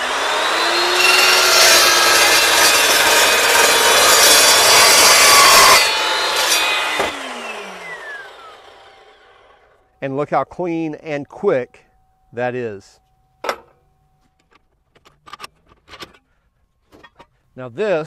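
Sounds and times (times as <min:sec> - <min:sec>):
saw blade cutting steel: 0:00.0 - 0:09.6
saw motor whining: 0:00.0 - 0:09.9.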